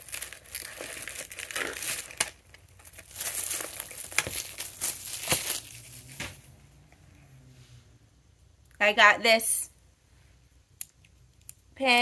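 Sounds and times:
plastic wrap crinkling: 0:00.0 - 0:06.4.

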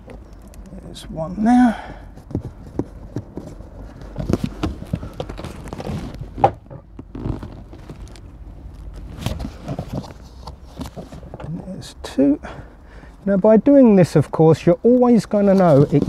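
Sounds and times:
cardboard rustling: 0:02.0 - 0:11.6, 0:15.2 - 0:16.0.

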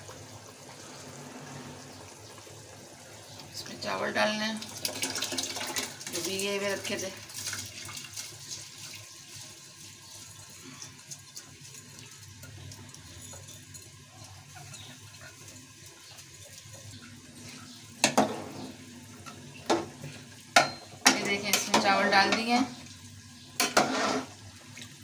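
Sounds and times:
spoon clanking on metal pot: 0:20.6 - 0:22.5
rice scraped into pot: 0:23.6 - 0:24.4.

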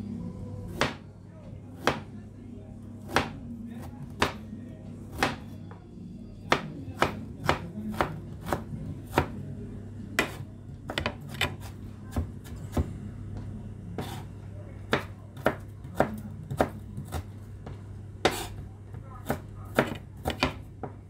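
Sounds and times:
knife chopping on cutting board: 0:00.7 - 0:01.0, 0:01.8 - 0:02.1, 0:03.1 - 0:03.4, 0:04.1 - 0:04.4, 0:05.1 - 0:05.5, 0:06.5 - 0:09.3, 0:10.2 - 0:12.9, 0:14.0 - 0:14.3, 0:14.9 - 0:18.6, 0:19.2 - 0:21.0
steady low hum: 0:11.7 - 0:21.0.

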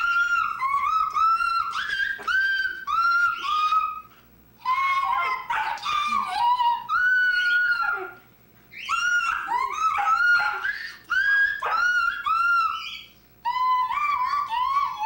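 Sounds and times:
dog howling: 0:00.0 - 0:08.2, 0:08.8 - 0:15.0.

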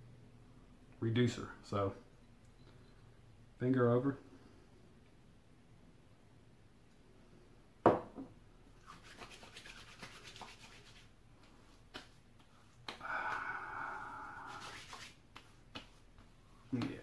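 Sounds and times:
hands rubbing and patting face: 0:08.8 - 0:17.0.

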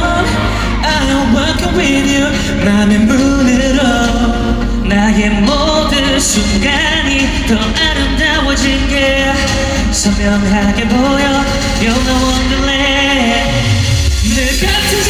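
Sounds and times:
amplified instrumental with bass: 0:00.0 - 0:15.0
male vocal group singing: 0:00.0 - 0:15.0.

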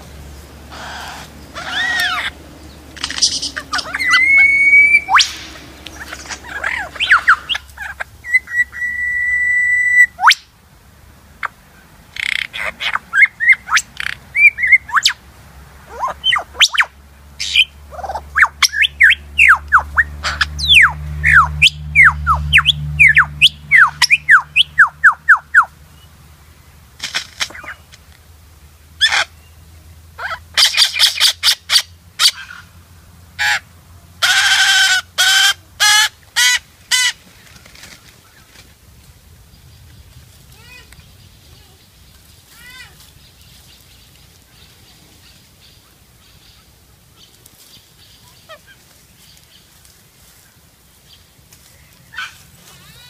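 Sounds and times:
low hum: 0:00.0 - 0:09.0
bird clicks and buzzing: 0:00.2 - 0:04.2
bird whistled song: 0:03.0 - 0:10.5, 0:13.1 - 0:15.2, 0:16.0 - 0:17.7, 0:18.4 - 0:25.7.

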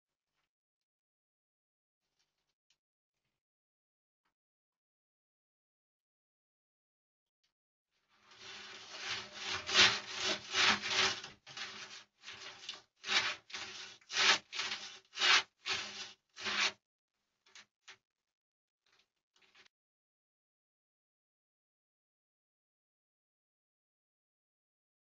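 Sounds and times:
lizard scraping along wooden log: 0:08.3 - 0:16.8.

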